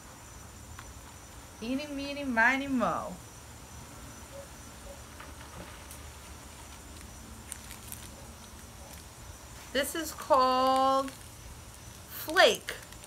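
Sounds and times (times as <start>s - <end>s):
faint insect chirping: 0.0s - 13.0s
faint ticks of snack handling: 5.6s - 13.0s.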